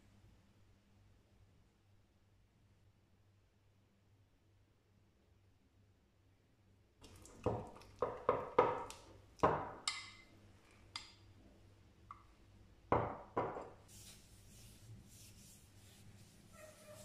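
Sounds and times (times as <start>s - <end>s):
hands rustling on fabric: 13.8s - 17.0s.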